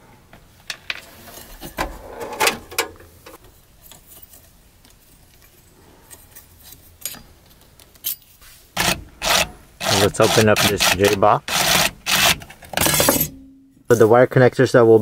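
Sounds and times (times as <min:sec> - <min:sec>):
wire handling clicks and rustles: 0:00.6 - 0:09.0.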